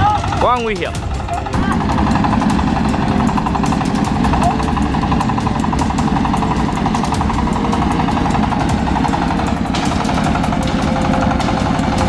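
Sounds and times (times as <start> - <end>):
engine running under load: 0.0 - 12.0.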